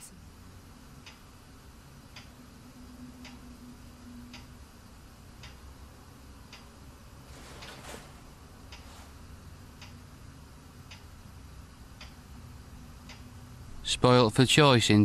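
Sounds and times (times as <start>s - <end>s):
wall clock ticking: 0.8s - 7.2s, 8.4s - 13.6s
curtain swish: 7.2s - 9.3s
short metallic scrape: 7.3s - 8.2s.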